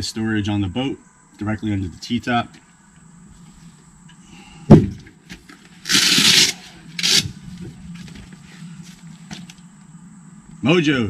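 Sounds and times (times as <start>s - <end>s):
rubbing and scraping: 4.9s - 9.6s.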